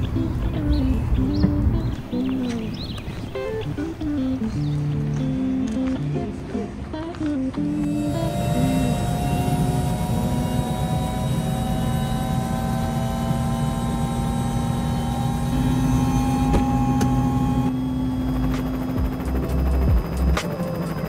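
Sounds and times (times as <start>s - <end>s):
helicopter engine rumble: 7.6s - 21.0s.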